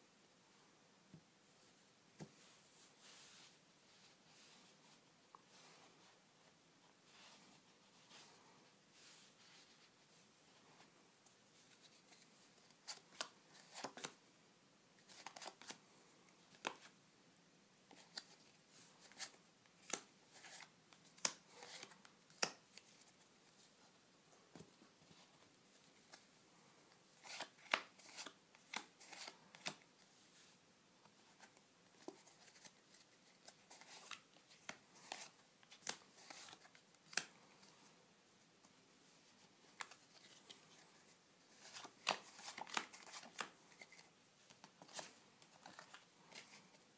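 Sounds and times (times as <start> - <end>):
playing cards snapping and rustling: 27.2 - 29.8, 33.4 - 37.4, 41.6 - 46.5.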